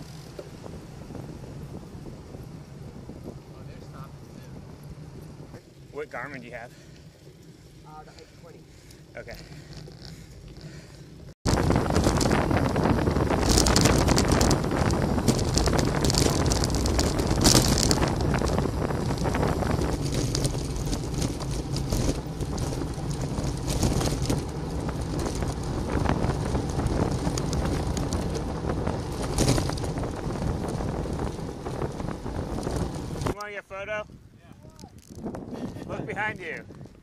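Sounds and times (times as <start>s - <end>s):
wind buffeting microphone: 0.0s - 37.0s.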